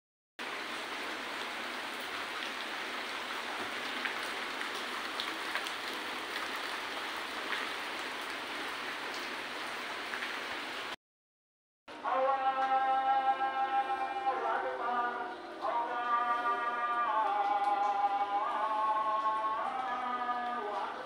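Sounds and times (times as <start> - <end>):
steady hiss like rain: 0.4 - 11.0.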